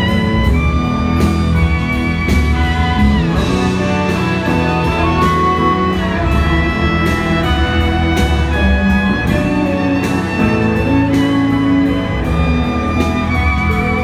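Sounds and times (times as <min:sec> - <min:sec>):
live band playing: 0:00.0 - 0:14.0.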